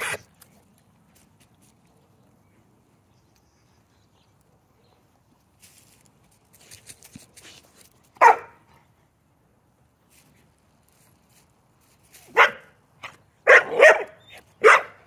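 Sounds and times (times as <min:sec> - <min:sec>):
faint scratchy rustling: 0:05.1 - 0:08.3, 0:10.0 - 0:12.5
dog barking: 0:08.2 - 0:08.6, 0:12.4 - 0:12.7, 0:13.4 - 0:15.0.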